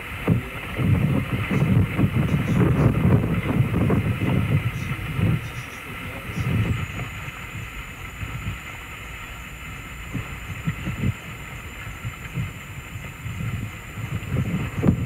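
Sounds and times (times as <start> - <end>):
faint electronic hiss: 0.0 - 15.0
wind buffeting microphone: 0.0 - 15.0.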